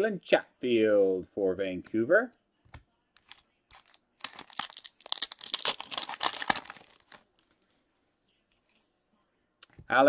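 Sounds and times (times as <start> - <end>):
foil wrapper tearing and crinkling: 3.2 - 7.4.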